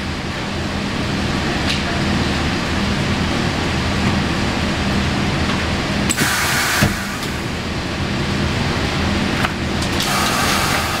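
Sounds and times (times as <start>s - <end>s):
machine hum: 0.0s - 11.0s
sharp air hiss: 6.1s - 7.4s.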